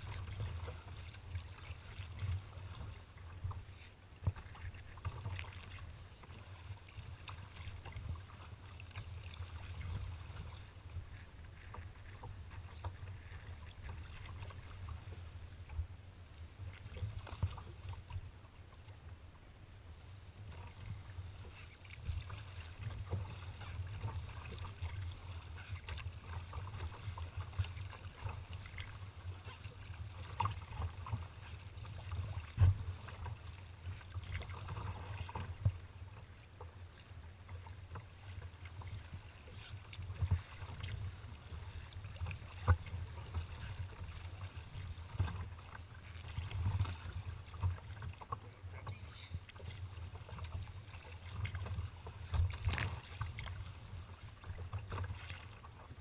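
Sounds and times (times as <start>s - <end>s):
water splashing against kayak hull: 0.0s - 19.2s, 20.0s - 56.0s
waves knocking on hull: 20.4s - 56.0s.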